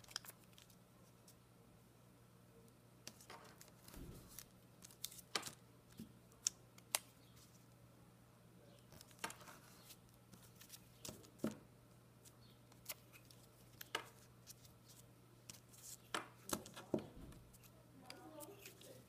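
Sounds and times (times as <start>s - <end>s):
faint steady hum: 0.0s - 19.0s
paper rustling: 18.3s - 19.0s.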